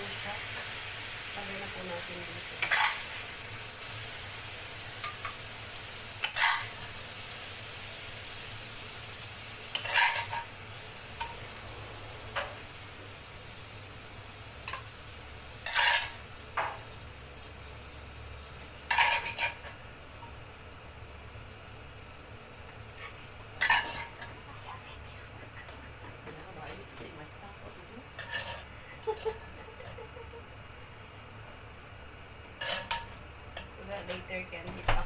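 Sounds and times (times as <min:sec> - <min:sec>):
pan sizzling: 0:00.0 - 0:35.0
metal spatula scraping wok: 0:02.6 - 0:03.1, 0:06.2 - 0:06.8, 0:09.7 - 0:12.9, 0:15.6 - 0:16.3, 0:18.8 - 0:20.3, 0:23.0 - 0:24.3, 0:28.1 - 0:29.4, 0:32.6 - 0:34.2.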